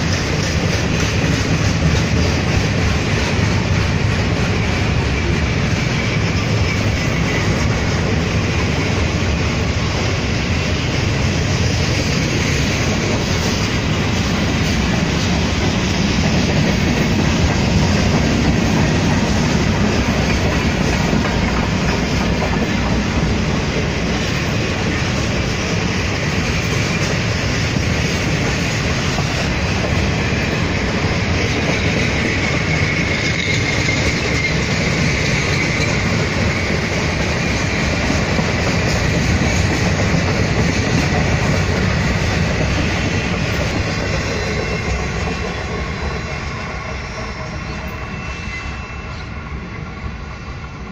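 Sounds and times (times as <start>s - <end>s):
freight train wheels clattering: 0.0s - 50.9s
faint high wheel squeal: 31.1s - 37.8s, 42.8s - 50.9s.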